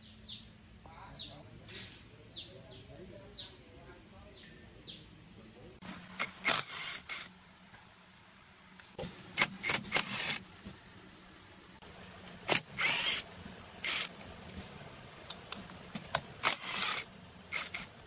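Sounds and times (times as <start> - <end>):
faint steady hum: 5.1 - 18.0.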